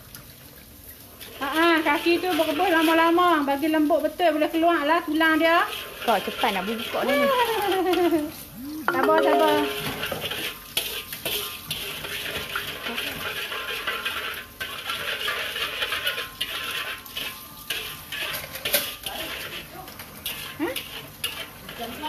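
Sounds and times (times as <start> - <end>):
syrup bubbling and sizzling: 0.0 - 22.0
metal spatula scraping wok: 1.2 - 3.4, 4.8 - 8.5, 9.6 - 22.0.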